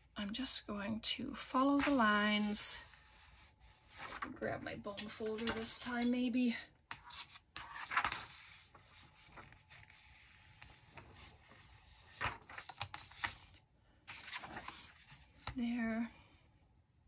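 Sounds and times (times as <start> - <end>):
paper handling: 1.8 - 2.6, 6.9 - 15.6.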